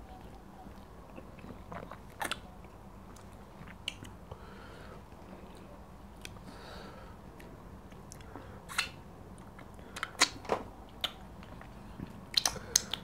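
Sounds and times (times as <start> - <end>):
wet mouth smacks and chewing: 1.2 - 4.2, 7.4 - 13.0.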